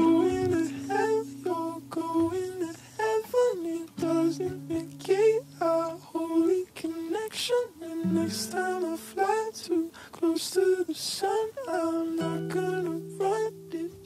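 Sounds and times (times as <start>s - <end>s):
humming-like melody: 0.0s - 6.6s.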